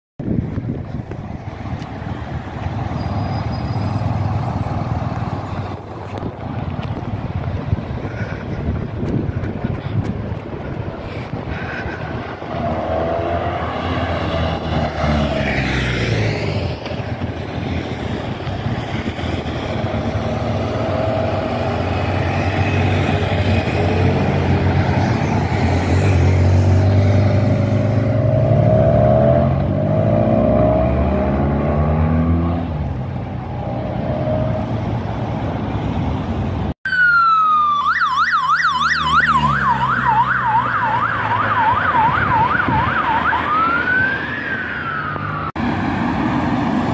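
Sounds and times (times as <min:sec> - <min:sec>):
vehicle engines driving past: 0:00.3 - 0:37.3, 0:38.1 - 0:46.9
police siren yelping: 0:36.9 - 0:45.5.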